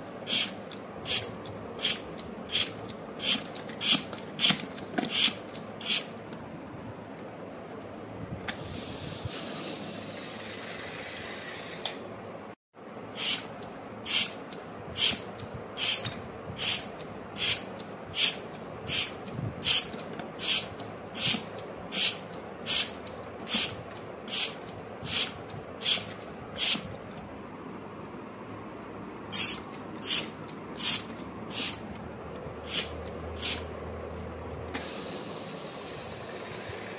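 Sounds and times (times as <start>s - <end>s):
hand pump air puffs: 0.3s - 6.1s, 13.2s - 14.4s, 15.0s - 26.9s, 29.3s - 31.8s, 32.6s - 33.6s.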